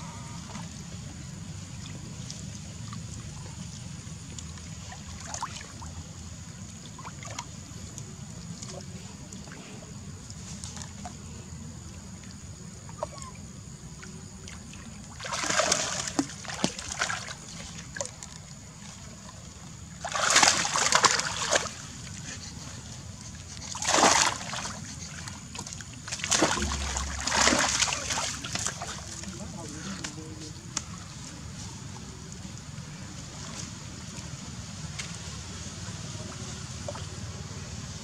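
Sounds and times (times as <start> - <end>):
monkey splashing in water: 15.2 - 17.4, 20.0 - 22.5, 23.6 - 25.3, 26.0 - 29.5.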